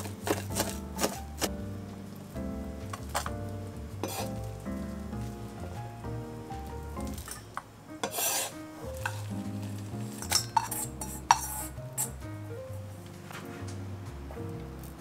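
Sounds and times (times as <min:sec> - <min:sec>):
utensils scraping cookware: 0:04.0 - 0:04.4, 0:07.2 - 0:09.4, 0:10.1 - 0:12.2
metal clinking on dishes: 0:07.2 - 0:08.4, 0:10.2 - 0:12.1.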